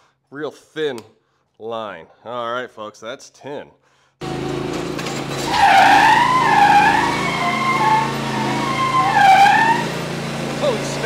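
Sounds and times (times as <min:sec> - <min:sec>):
mower engine running: 0:04.2 - 0:11.0
tyres squealing on concrete: 0:04.7 - 0:11.0.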